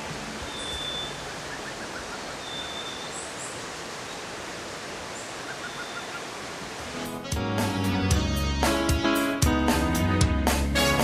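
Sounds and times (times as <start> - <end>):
steady background hiss: 0.0 - 7.2
faint bird calls: 0.3 - 4.3, 5.1 - 6.5.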